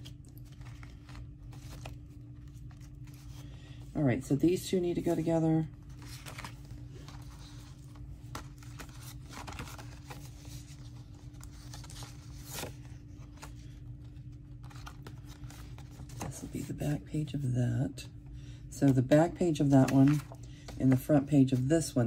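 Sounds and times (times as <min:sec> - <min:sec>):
paper rustling: 0:00.0 - 0:03.8, 0:05.9 - 0:16.7, 0:19.6 - 0:21.7
steady low hum: 0:00.0 - 0:22.0.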